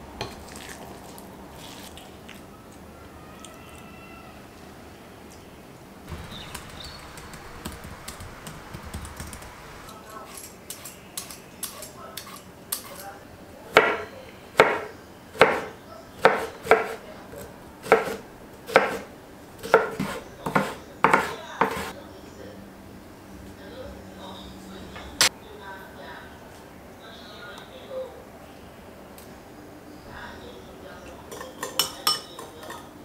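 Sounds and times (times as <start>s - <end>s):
knife chopping on wooden board: 13.7s - 17.0s, 17.8s - 21.9s.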